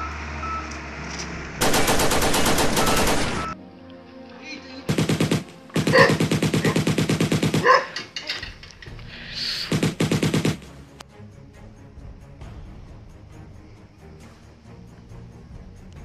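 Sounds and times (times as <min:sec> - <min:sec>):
automatic gunfire bursts: 0:01.6 - 0:03.6, 0:04.9 - 0:08.0, 0:09.7 - 0:10.7.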